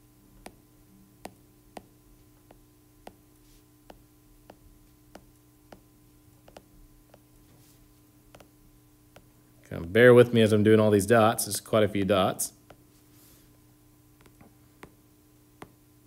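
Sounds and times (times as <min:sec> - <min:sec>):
low steady hum: 0:00.0 - 0:16.0
stylus tapping on glass screen: 0:01.2 - 0:03.2, 0:03.8 - 0:07.3.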